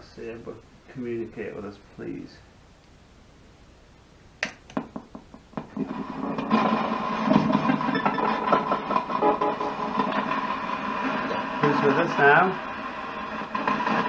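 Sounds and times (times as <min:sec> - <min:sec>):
stuttering radio static: 0:05.7 - 0:14.0.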